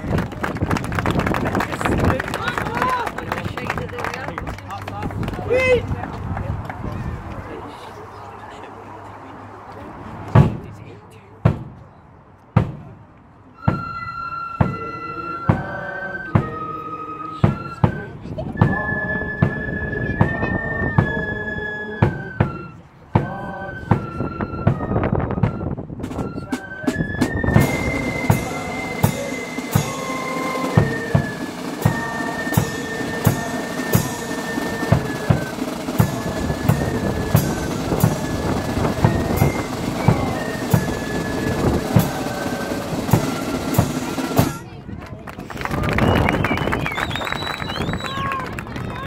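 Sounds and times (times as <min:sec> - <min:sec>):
flutes playing: 0:13.5 - 0:44.8, 0:45.8 - 0:48.6
drum beat: 0:27.5 - 0:44.6.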